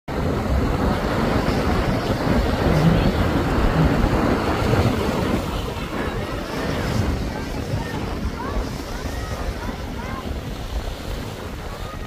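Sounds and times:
small waves breaking: 0.1s - 12.0s
wind buffeting microphone: 0.1s - 12.0s.

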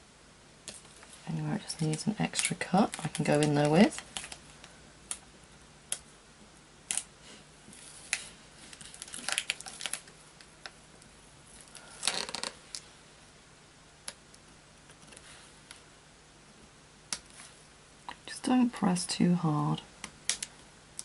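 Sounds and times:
film crinkling: 0.7s - 5.2s, 7.7s - 12.9s.

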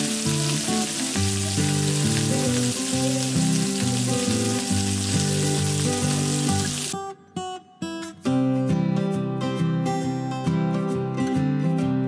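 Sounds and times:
meat sizzling in oil: 0.0s - 7.0s
background music: 0.0s - 12.0s.

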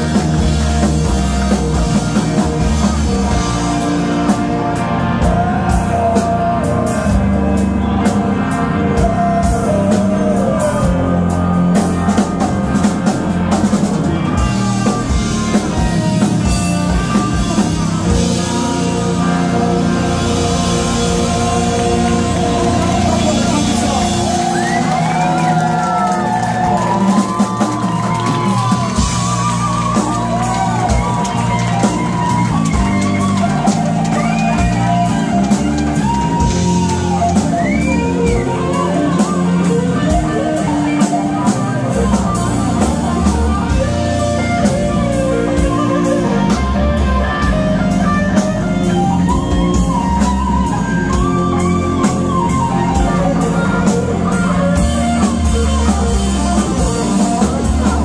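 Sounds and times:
electric guitar lead notes bending: 0.0s - 58.0s
live rock band playing: 0.0s - 58.0s.

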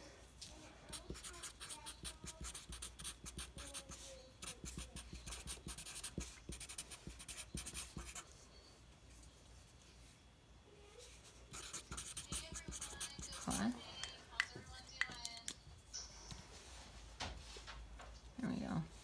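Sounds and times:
marker scratching on paper: 0.9s - 8.3s, 11.5s - 13.7s.

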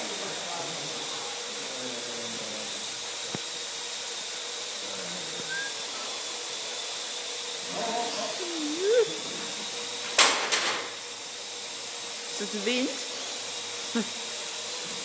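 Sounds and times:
drone rotors whirring: 0.8s - 10.2s, 10.8s - 15.0s
person crying out: 7.8s - 9.5s.

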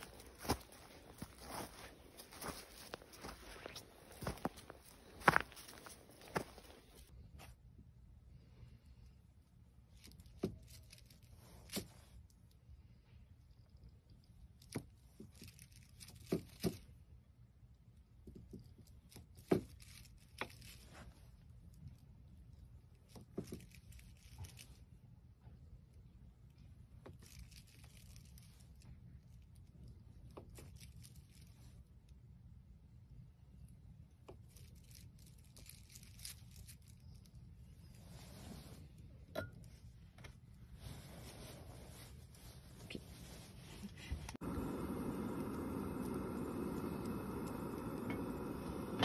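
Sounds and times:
plastic wrap crinkling: 0.0s - 7.1s.

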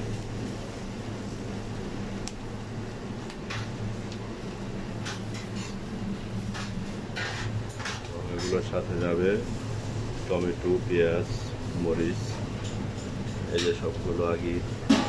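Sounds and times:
kitchen ventilation hum: 0.0s - 15.0s.

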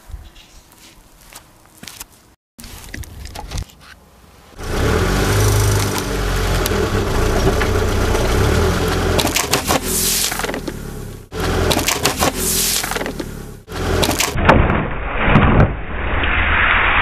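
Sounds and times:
car engine running: 4.6s - 14.4s
tyre crushing objects: 8.8s - 15.7s.

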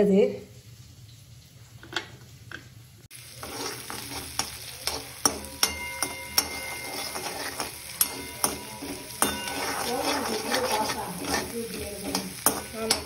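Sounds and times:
vegetables sizzling in a pan: 0.0s - 13.0s
metal spoon clinking and scraping pan: 3.2s - 13.0s.

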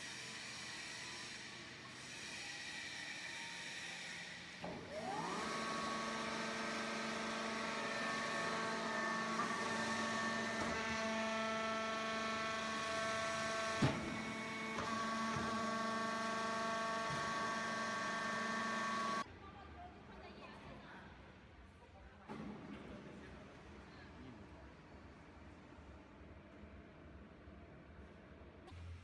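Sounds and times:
hydraulic pump motor whine: 4.6s - 19.2s.

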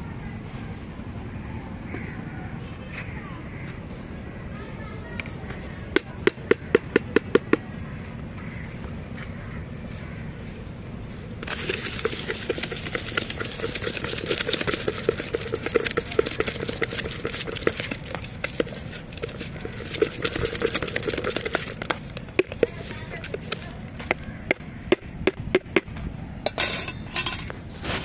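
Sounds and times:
dry grains rattling in plastic mug: 11.4s - 24.5s.

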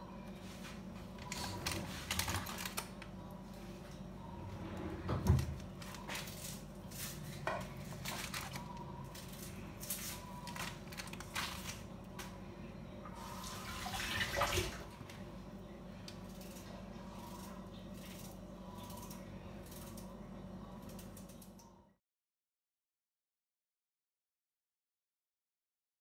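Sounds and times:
paper rustling: 5.8s - 11.8s.

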